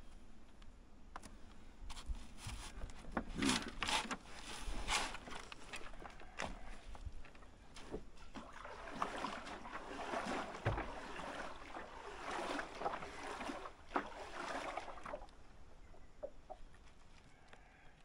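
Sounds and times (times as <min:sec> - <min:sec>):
branches rustling against a boat: 0:01.4 - 0:18.0
dull knock on a hull: 0:10.4 - 0:11.2.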